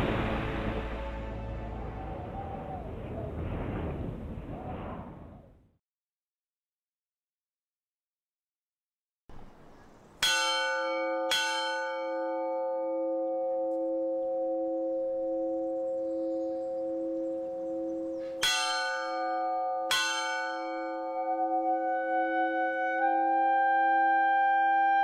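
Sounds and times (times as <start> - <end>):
church bell ringing: 10.2 - 24.8.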